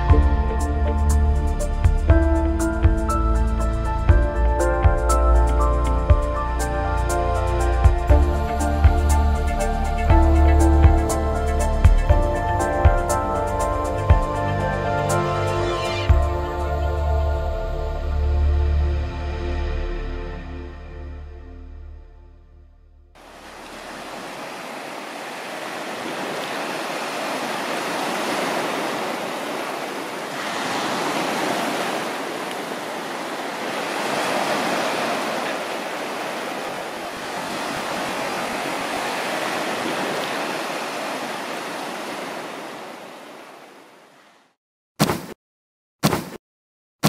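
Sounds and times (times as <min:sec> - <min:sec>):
waves breaking on sandy beach: 0:23.2 - 0:44.5.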